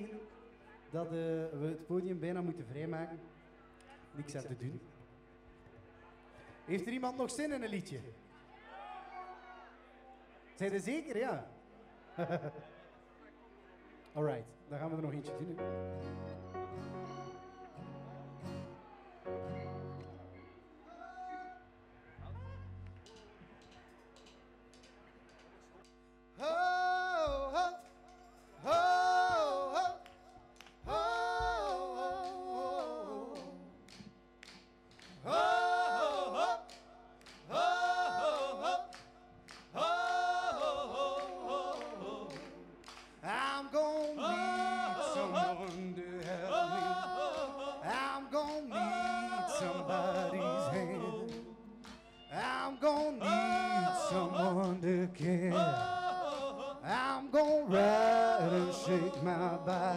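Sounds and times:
voices singing: 26.4 - 28.0, 28.6 - 30.2, 30.8 - 34.1, 35.1 - 59.9.

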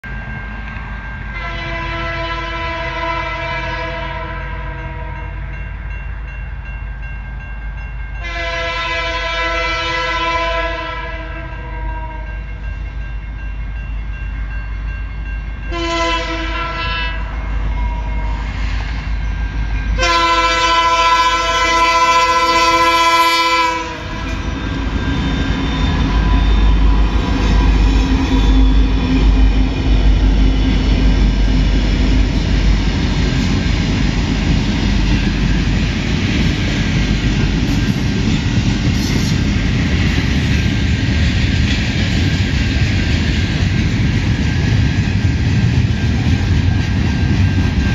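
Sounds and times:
diesel locomotives rumbling past: 0.0 - 47.9
train horn blasts: 1.3 - 5.5, 8.2 - 12.5, 15.7 - 18.6, 20.0 - 24.5.

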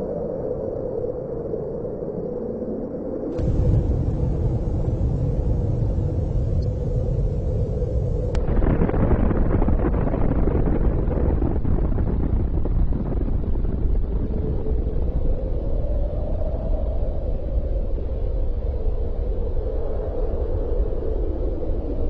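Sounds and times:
faint drone: 0.0 - 10.4
explosion rumble: 3.4 - 15.2.

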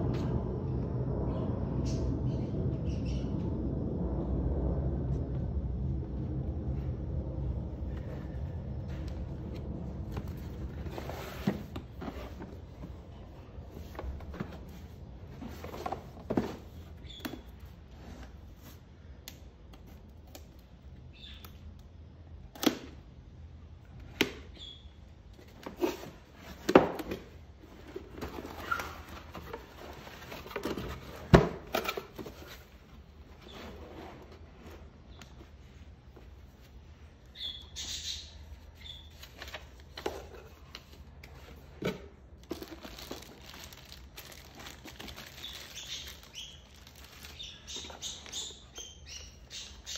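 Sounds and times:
cardboard flaps scraping and rustling: 8.9 - 18.8, 25.4 - 36.9.

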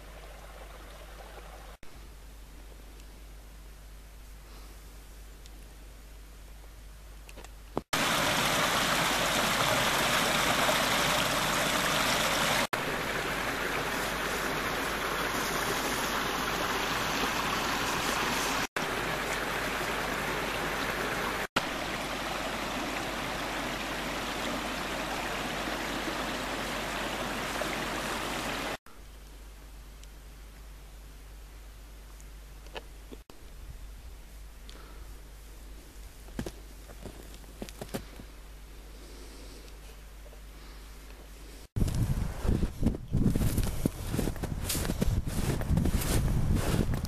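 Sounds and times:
stream flowing: 0.0 - 1.8, 7.9 - 28.8.

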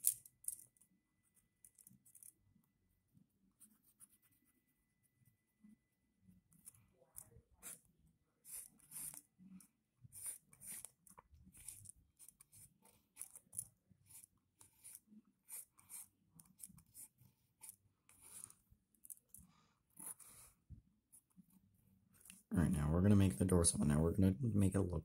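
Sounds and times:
pencil scratching on paper: 1.2 - 18.7, 19.9 - 21.5.

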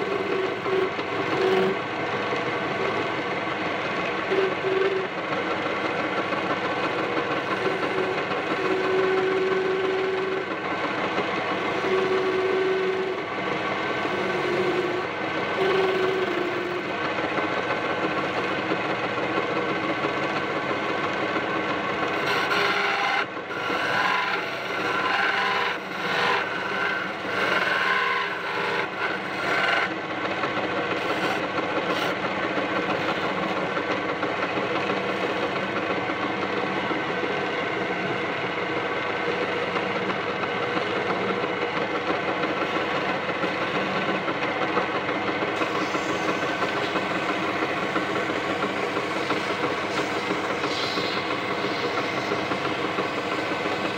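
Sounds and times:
tool scraping spinning wood: 0.0 - 53.9
wood lathe running: 0.0 - 53.9.

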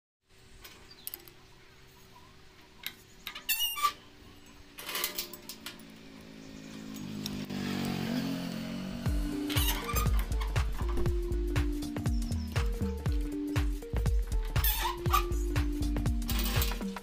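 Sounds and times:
background music: 7.8 - 17.0
steel rod scraping: 14.6 - 15.4.

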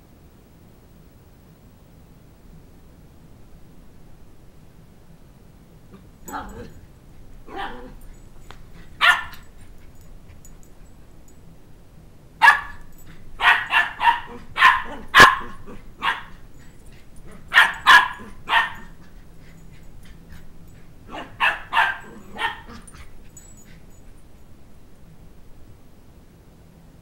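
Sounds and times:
puppy yapping barks: 6.2 - 6.8, 7.5 - 8.0, 9.0 - 9.5, 12.4 - 16.4, 17.3 - 19.0, 21.1 - 23.1.

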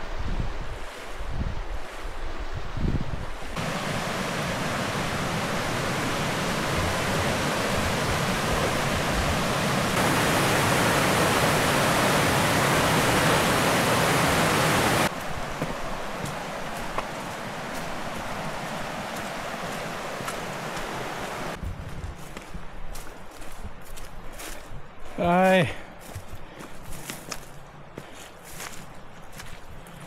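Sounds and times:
wind buffeting microphone: 0.0 - 25.2
river water rushing: 3.3 - 21.6.

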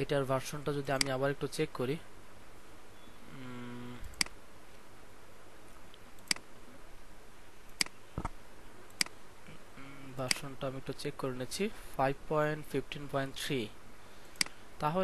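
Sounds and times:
computer mouse clicks: 4.0 - 4.4, 7.7 - 9.2, 14.4 - 14.6.

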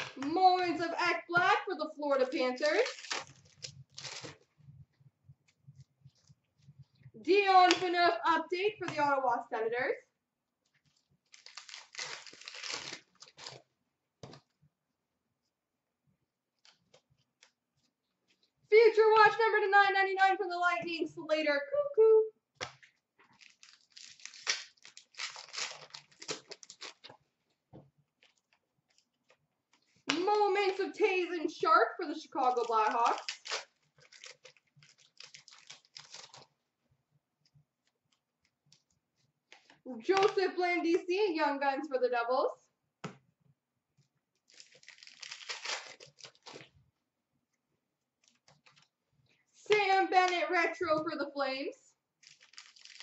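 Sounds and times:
wrapper crinkling and tearing: 2.3 - 4.5, 10.8 - 13.7, 23.2 - 27.2, 32.1 - 36.6, 44.4 - 46.8, 52.2 - 53.0.

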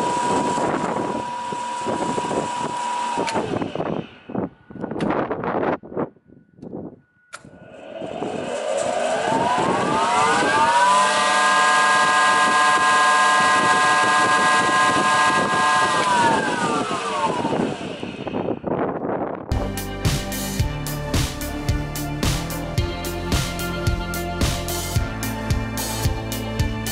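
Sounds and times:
spindle moulder motor whine: 0.0 - 5.4, 7.1 - 18.9.

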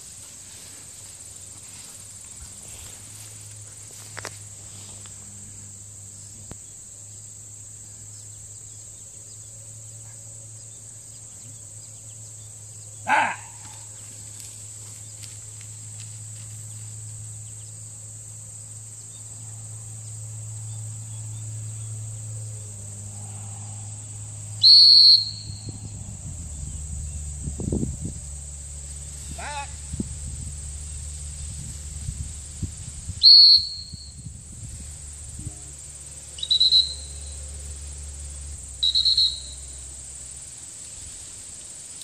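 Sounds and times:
high insect drone: 0.0 - 42.0
dog whistle blast: 24.6 - 25.7, 33.2 - 34.2, 36.4 - 37.2, 38.8 - 39.6.

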